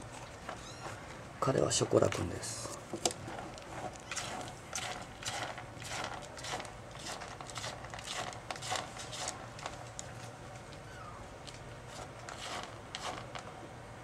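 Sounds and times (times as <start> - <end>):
kitten scratching in cat litter: 3.2 - 11.0, 11.8 - 13.6.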